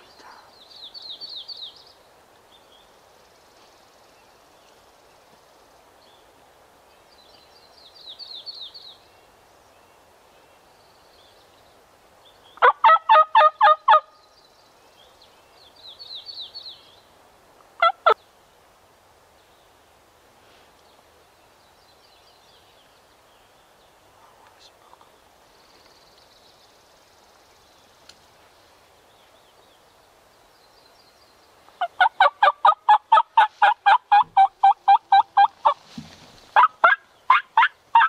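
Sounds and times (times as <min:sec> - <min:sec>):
turkey gobbling: 0:12.6 - 0:14.1, 0:17.8 - 0:18.2, 0:31.8 - 0:35.8, 0:36.6 - 0:38.0.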